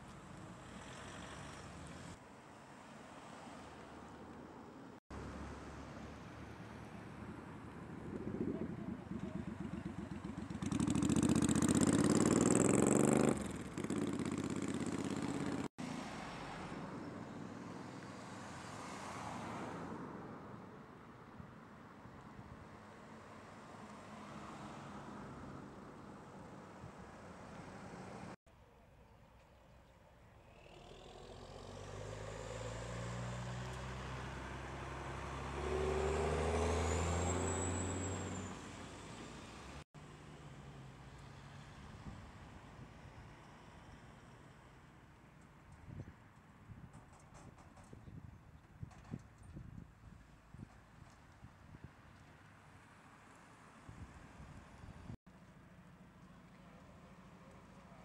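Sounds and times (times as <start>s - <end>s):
cars passing: 0.3s - 8.3s, 9.3s - 28.4s, 30.6s - 42.5s
vehicle accelerating past: 30.5s - 42.1s.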